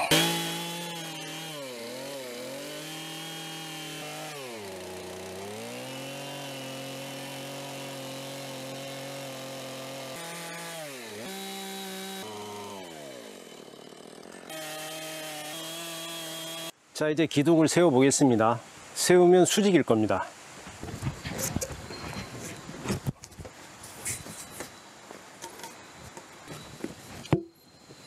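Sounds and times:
chainsaw cutting wood: 0:00.0 - 0:16.8.

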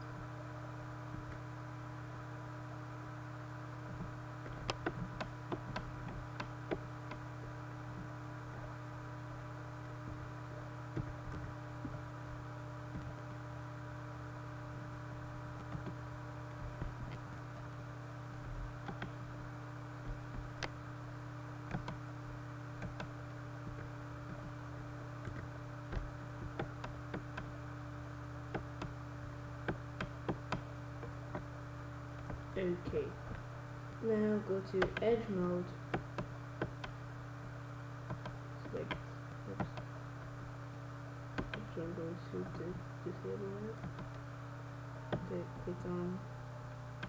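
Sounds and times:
electrical hum: 0:00.0 - 0:47.0
keyboard and mouse clicks: 0:03.9 - 0:07.2, 0:18.8 - 0:19.2, 0:21.7 - 0:22.0, 0:29.7 - 0:30.7.

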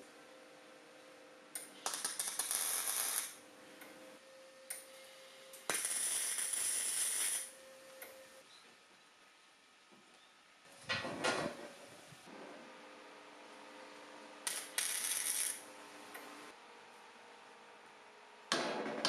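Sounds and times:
arc welder crackling hiss: 0:01.6 - 0:03.4, 0:05.5 - 0:07.6, 0:14.4 - 0:15.7.

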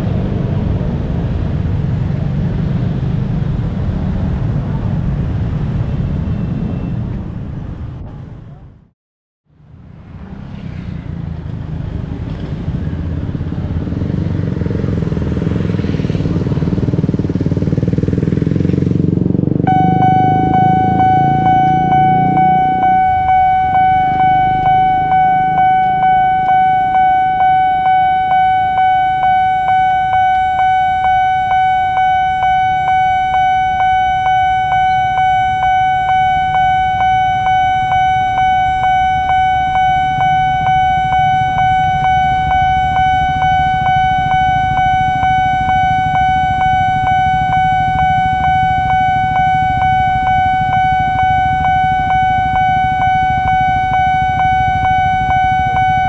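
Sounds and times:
pulsing electronic warning tone: 0:16.5 - 0:56.0.

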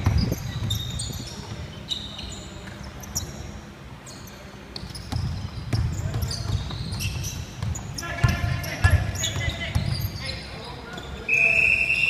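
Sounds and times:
basketball bouncing: 0:00.0 - 0:01.6, 0:04.8 - 0:10.2
sneakers squeaking on court: 0:00.0 - 0:11.5.

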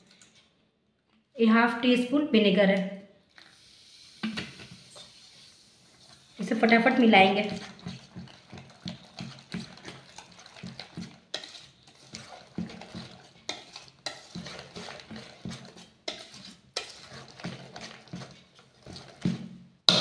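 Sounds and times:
whisk stirring thick batter: 0:04.6 - 0:20.0
whisk clinking against bowl: 0:06.8 - 0:19.3.

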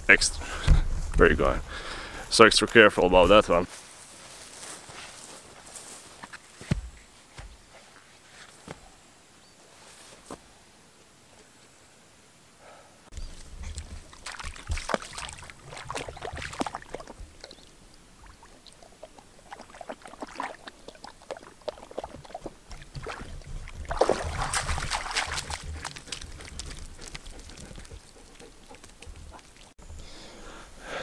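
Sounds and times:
dog splashing in water: 0:13.6 - 0:29.8.

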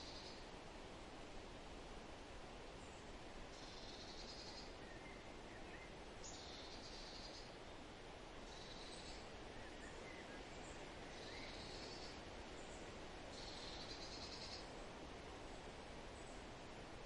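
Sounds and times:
faint bird chirps: 0:00.0 - 0:00.5, 0:02.8 - 0:07.8, 0:08.5 - 0:14.8.

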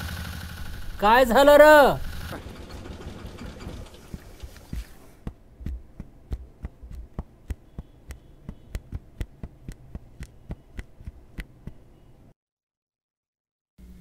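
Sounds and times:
regular sharp ticks: 0:04.1 - 0:12.0
heavy low thumps: 0:04.7 - 0:11.7.

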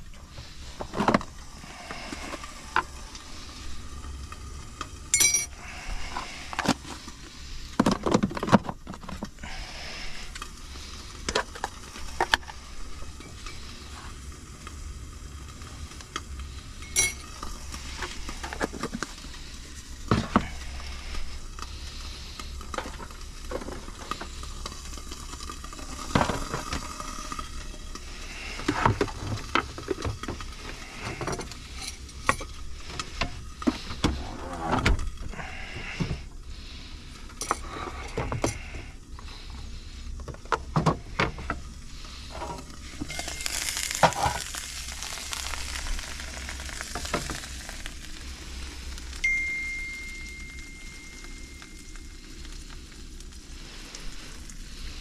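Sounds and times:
food sizzling in a frying pan: 0:09.4 - 0:33.9, 0:41.0 - 0:55.0.

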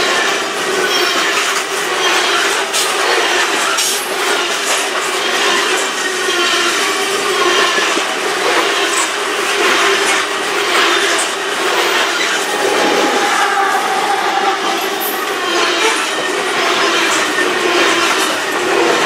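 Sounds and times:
train wheels rumbling and rattling: 0:00.0 - 0:19.0.

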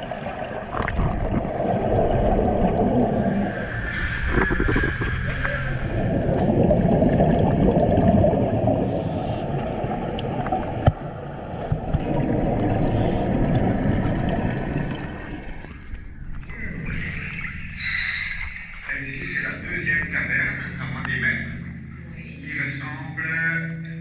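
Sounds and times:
underwater churning and bubbling: 0:00.0 - 0:24.0.

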